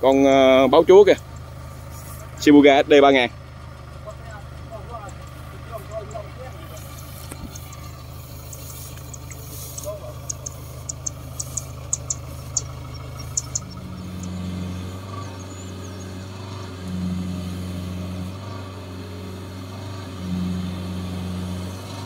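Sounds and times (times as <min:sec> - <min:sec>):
diesel engine under load: 0:00.0 - 0:22.0
sharp ticks: 0:01.2 - 0:01.6, 0:04.9 - 0:16.2.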